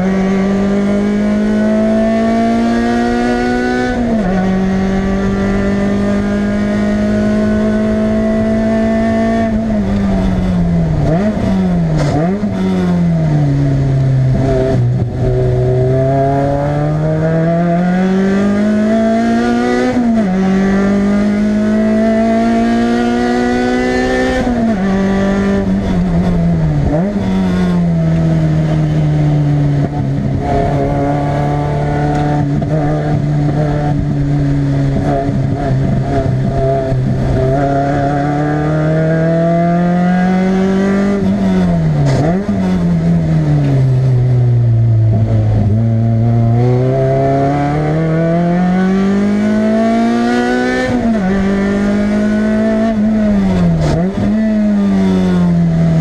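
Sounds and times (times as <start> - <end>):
car engine accelerating from cabin: 0.0 - 56.0.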